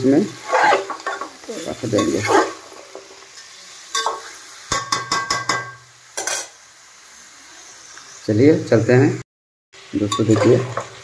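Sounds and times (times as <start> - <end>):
faint sizzle: 0.0 - 9.2, 9.8 - 11.0
metal utensil scraping a pot: 0.2 - 3.0, 10.1 - 11.0.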